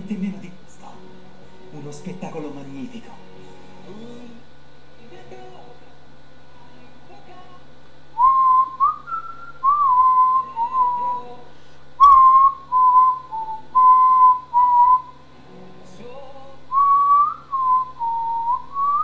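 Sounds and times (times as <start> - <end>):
man whistling a melody: 8.2 - 11.3, 12.0 - 15.1, 16.7 - 19.0.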